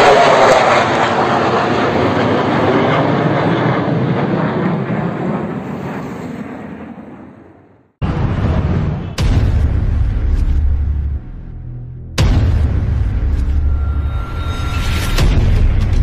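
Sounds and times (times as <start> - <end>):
jet engines roaring: 0.0 - 9.2.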